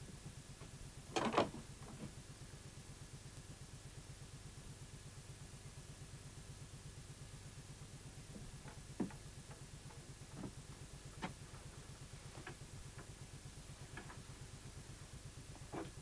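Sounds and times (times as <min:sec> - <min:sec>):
faint knocks and clicks: 0:08.3 - 0:10.6, 0:15.6 - 0:16.0.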